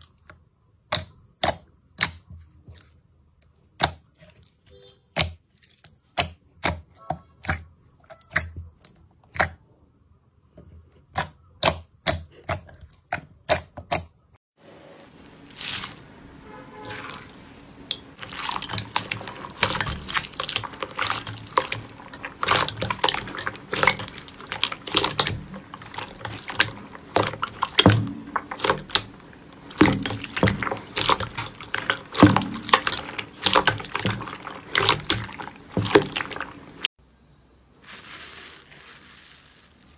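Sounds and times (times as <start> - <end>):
slime crackling and squishing: 11.0 - 36.9, 37.8 - 39.9
slime popping: 16.9 - 36.9.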